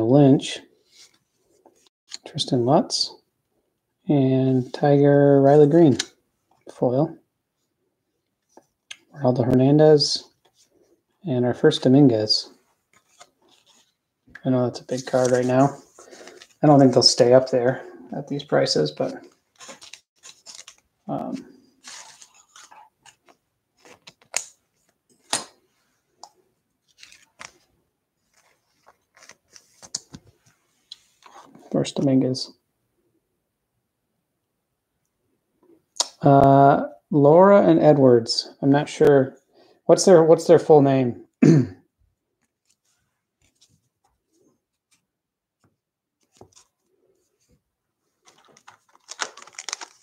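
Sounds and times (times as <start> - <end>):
cards clicking and rustling: 12.9 - 13.9, 14.8 - 17.2, 18.9 - 25.6, 26.3 - 27.7, 28.3 - 30.4, 48.2 - 50.0.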